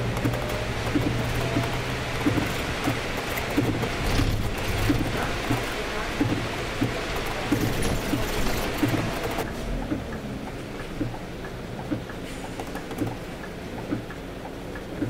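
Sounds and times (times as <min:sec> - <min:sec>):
bus engine and road hum: 0:00.0 - 0:15.0
rain and wet-road spray: 0:00.0 - 0:15.0
soft ticking: 0:08.8 - 0:15.0.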